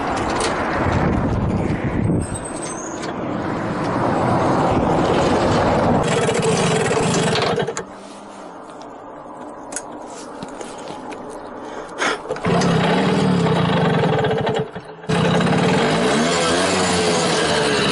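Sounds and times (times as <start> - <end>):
wind on microphone: 0.6 - 2.6
moped engine idling: 12.4 - 15.8.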